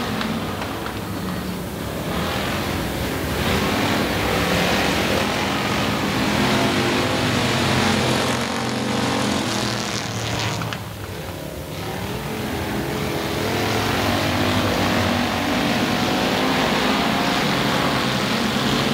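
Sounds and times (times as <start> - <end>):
race car engines running hard: 0.0 - 18.9
rushing noise: 0.0 - 18.9.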